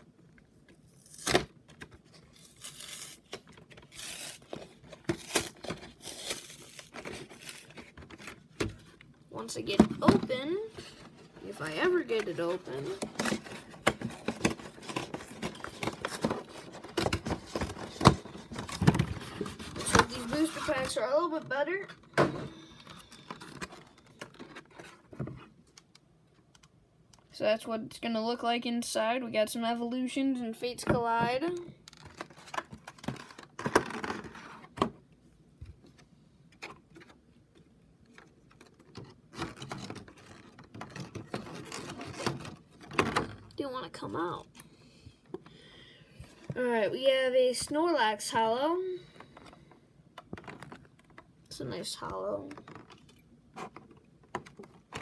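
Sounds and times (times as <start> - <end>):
scraping and rustling plastic: 0.9 - 21.8, 31.9 - 34.8, 38.1 - 43.4, 52.4 - 55.0.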